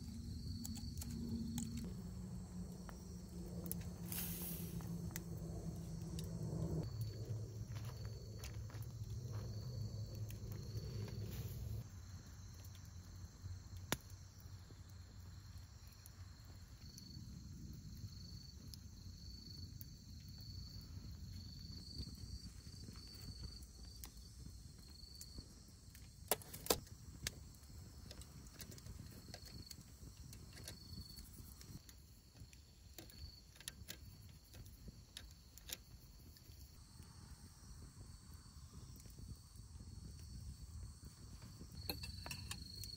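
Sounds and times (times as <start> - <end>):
faint insect chirping: 0.0 - 42.9
low rumble: 0.1 - 11.8.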